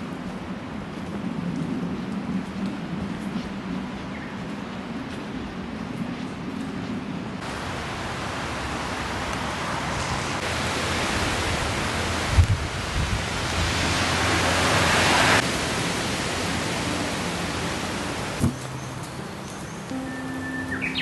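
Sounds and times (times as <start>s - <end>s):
wind buffeting on microphone: 0.0s - 7.6s, 8.2s - 17.0s
heavy rain: 0.0s - 21.0s
strong wind: 0.0s - 21.0s.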